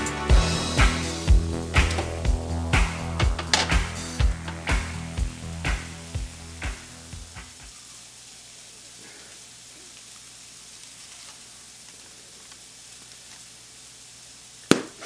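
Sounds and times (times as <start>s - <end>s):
background music with beat: 0.0s - 7.7s
food frying in a pan: 0.4s - 15.0s.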